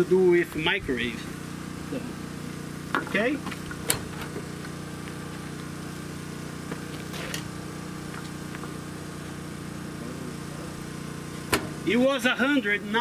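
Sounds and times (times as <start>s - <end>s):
engine idling hum: 0.0s - 13.0s.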